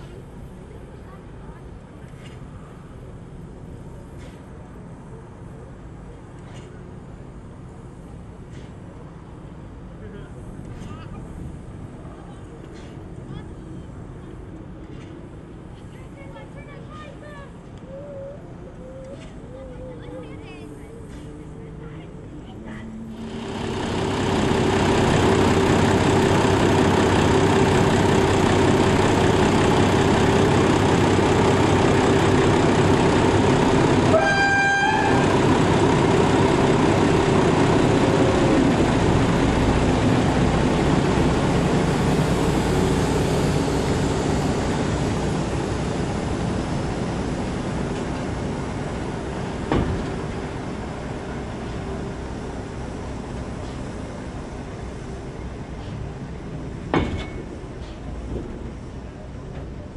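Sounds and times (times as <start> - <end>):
rail vehicle rolling past: 0.0 - 59.9
horn toot: 34.1 - 35.3.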